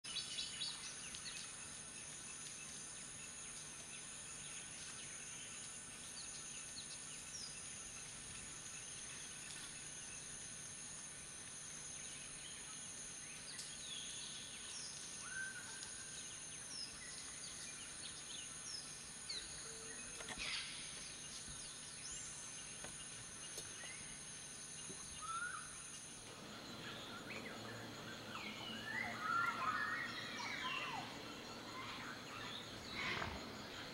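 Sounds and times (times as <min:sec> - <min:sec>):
steady high-pitched hum: 0:00.1 - 0:33.9
bird calls chirps and whistles: 0:25.2 - 0:25.7, 0:26.8 - 0:33.8.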